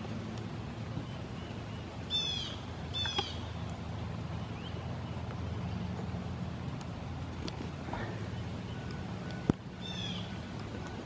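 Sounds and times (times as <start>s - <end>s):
steady low hum: 0.0s - 11.0s
hawk calling: 1.1s - 3.5s, 9.8s - 10.4s.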